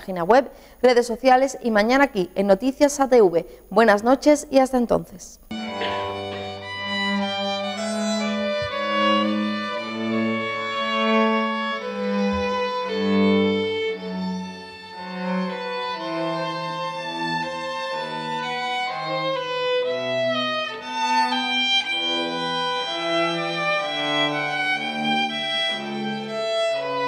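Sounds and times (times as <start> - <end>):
string trio playing slow piece: 5.5 - 27.0.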